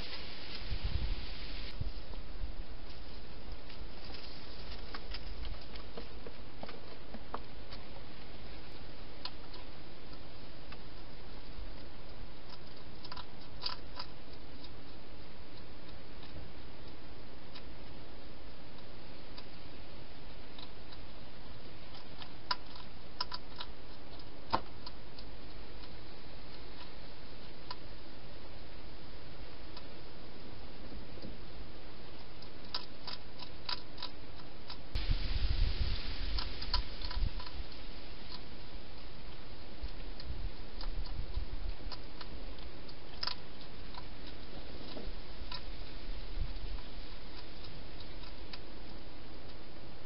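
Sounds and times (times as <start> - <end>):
background hiss: 0.0 - 50.0
hedgehog clicks and rustles: 2.8 - 19.8, 32.1 - 35.0
hedgehog chewing clicks: 11.8 - 19.7, 20.5 - 28.0, 32.1 - 34.9, 36.3 - 45.7.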